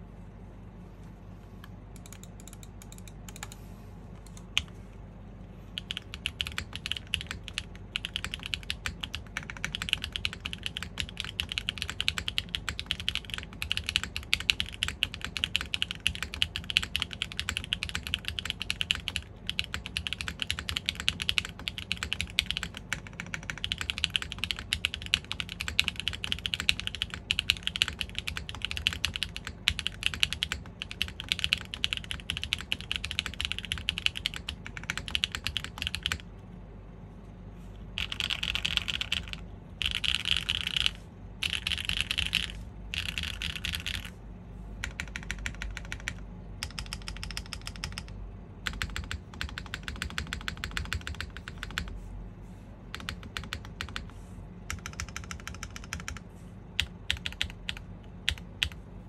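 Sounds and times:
mechanical keyboard typing: 1.9s - 3.6s, 5.8s - 36.3s, 38.0s - 44.2s, 44.8s - 51.9s, 52.9s - 58.8s.

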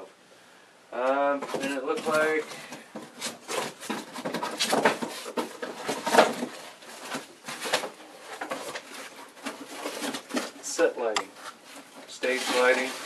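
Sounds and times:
cardboard rustling and scraping: 1.3s - 13.0s.

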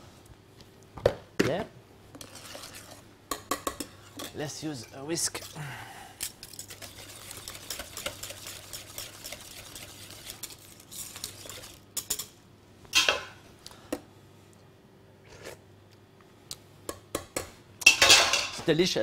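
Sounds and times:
whisk scraping a saucepan: 2.2s - 3.1s, 4.0s - 5.6s, 6.4s - 12.2s.

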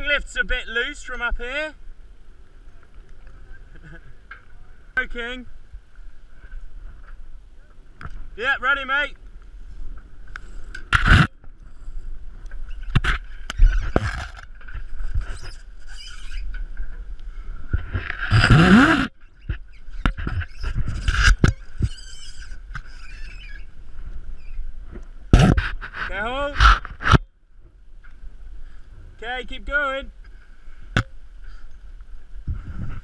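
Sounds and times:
harness and ropes scraping on mast: 10.4s - 23.7s, 25.3s - 27.2s.

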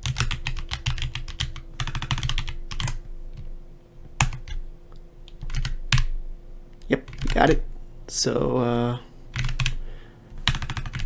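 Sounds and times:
typing on computer keyboard: 0.0s - 3.5s, 4.2s - 4.6s, 5.3s - 6.1s, 7.0s - 7.5s, 9.3s - 9.8s, 10.4s - 11.0s.

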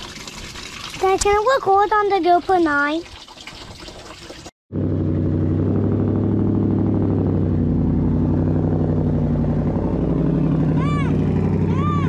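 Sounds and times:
car engine idling: 4.8s - 12.0s.

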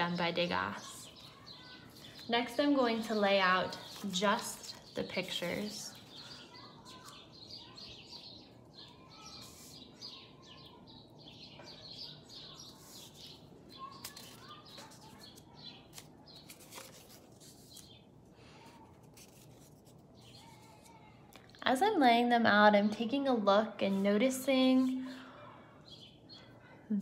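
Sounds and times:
faint bird chirps: 4.6s - 16.9s.

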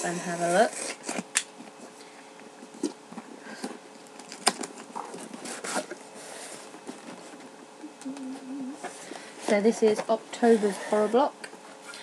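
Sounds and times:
cardboard scraping and rustling: 4.4s - 7.5s.

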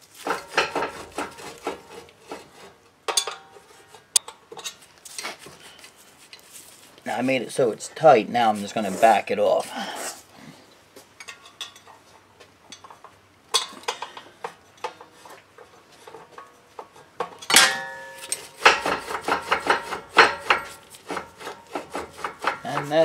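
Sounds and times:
sharp metal clank with ring: 17.5s - 18.4s.

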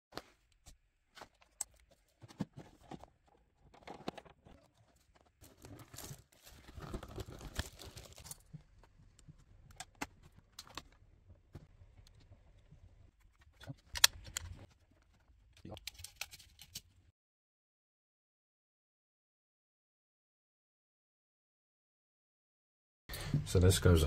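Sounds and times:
plastic and cardboard crinkling: 0.2s - 11.0s.

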